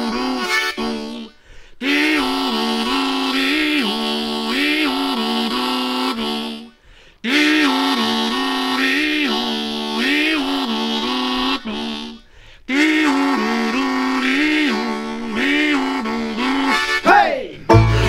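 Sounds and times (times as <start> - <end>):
harmonica playing chords: 0.0 - 18.0.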